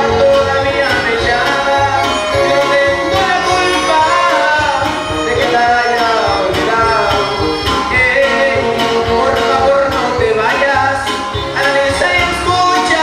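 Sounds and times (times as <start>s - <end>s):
man singing: 0.0s - 13.0s
strummed guitars: 0.0s - 13.0s
gliding violin melody: 0.3s - 12.2s.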